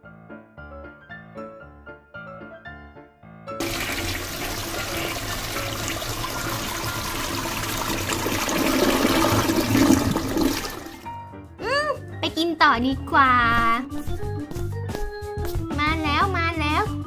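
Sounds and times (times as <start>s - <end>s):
children's background music: 0.0s - 17.0s
toy toilet flushing: 3.6s - 11.1s.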